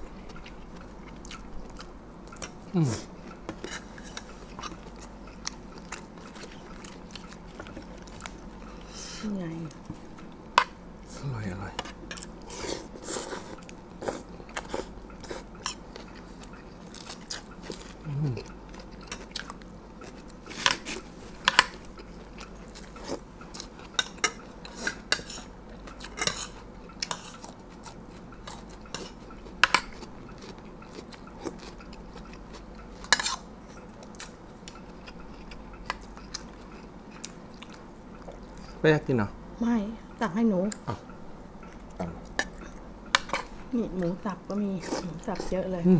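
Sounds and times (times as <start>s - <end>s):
quiet chewing: 0.0s - 10.7s, 11.8s - 38.8s, 40.7s - 45.6s.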